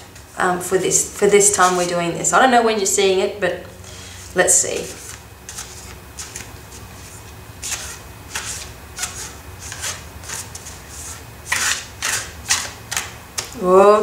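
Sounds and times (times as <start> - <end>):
cards being shuffled: 4.8 - 13.6.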